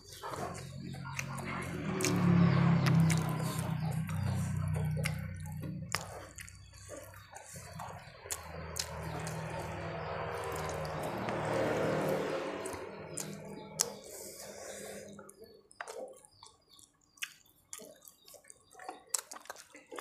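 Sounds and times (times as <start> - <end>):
mouth clicks and lip smacks: 2.8 - 9.4, 15.8 - 20.0.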